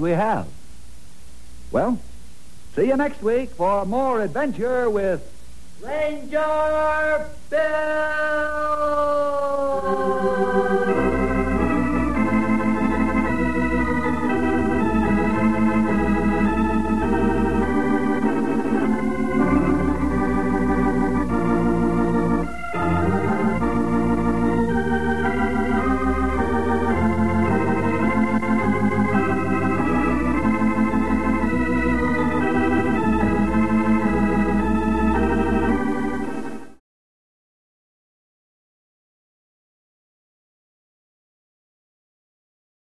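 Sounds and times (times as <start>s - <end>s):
organ music: 2.8s - 5.2s, 5.8s - 36.8s.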